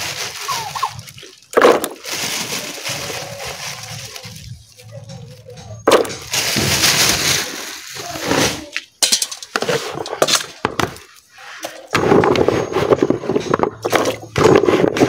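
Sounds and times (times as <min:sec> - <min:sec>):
water sloshing in plastic basin: 0:00.0 - 0:04.5, 0:09.7 - 0:14.9.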